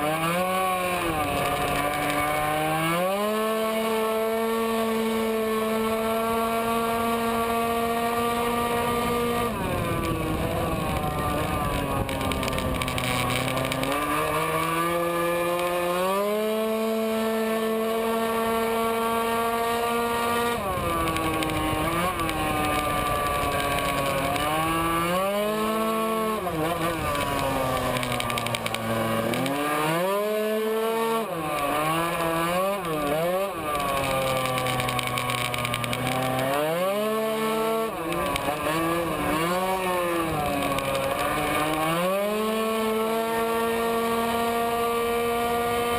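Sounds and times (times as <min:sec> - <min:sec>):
scooter engine revving: 0:00.0 - 0:45.9.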